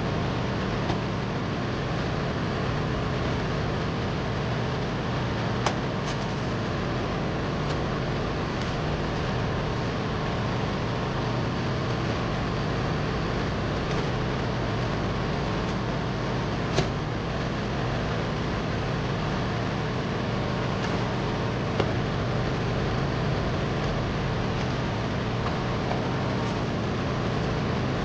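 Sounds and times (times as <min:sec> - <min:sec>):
air conditioning blowers humming: 0:00.0 - 0:28.0.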